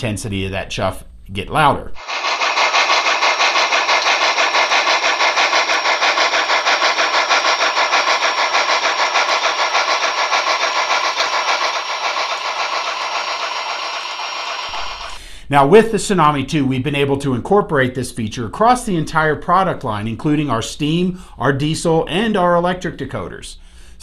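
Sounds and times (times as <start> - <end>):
model steam locomotive chuffing: 2.0 - 15.2.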